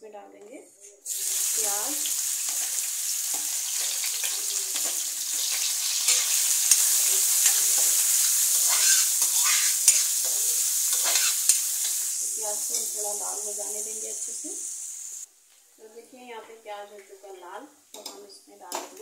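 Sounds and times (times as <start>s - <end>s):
onions sizzling in hot oil: 1.0s - 15.3s
spoon scraping metal pan: 2.4s - 13.5s
spoon clicking against pan: 3.3s - 7.9s.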